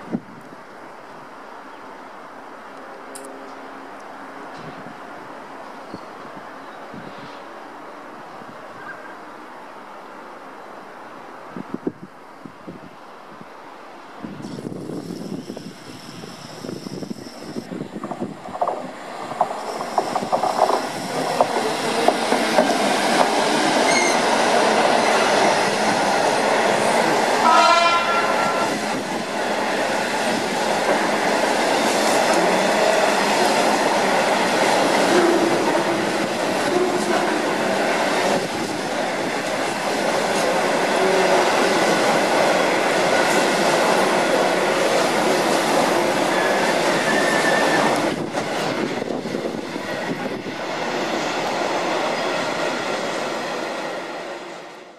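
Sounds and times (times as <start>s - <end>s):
diesel locomotive engine: 13.8s - 54.9s
train horn: 27.4s - 28.8s, 35.1s - 35.8s.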